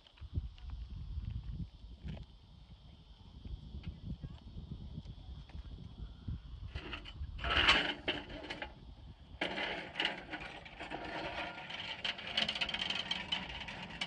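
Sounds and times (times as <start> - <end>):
metal steps rattling over tarmac: 6.8 - 8.8, 9.4 - 14.0.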